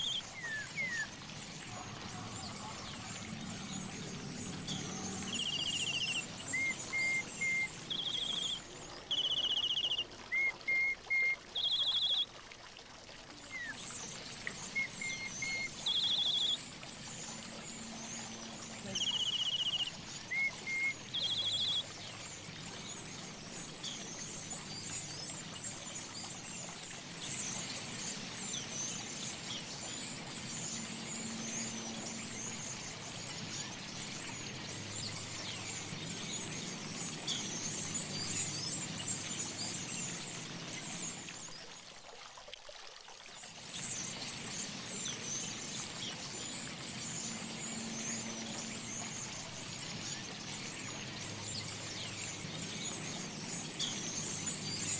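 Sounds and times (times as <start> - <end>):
birds calling: 0.0 - 12.2, 13.5 - 25.5
fountain water pouring into pool: 0.0 - 54.9.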